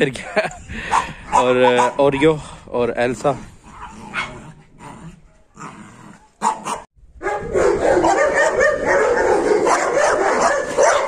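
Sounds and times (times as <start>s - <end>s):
dogs barking and whining: 0.9s - 2.3s, 3.6s - 11.0s
dogs yipping: 6.4s - 11.0s.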